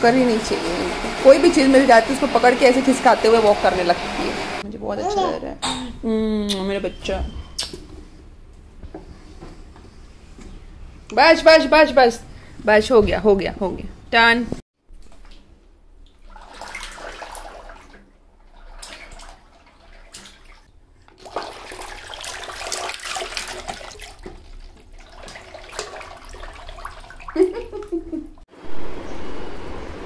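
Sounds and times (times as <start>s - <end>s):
water splashing in a tub: 14.8s - 28.8s.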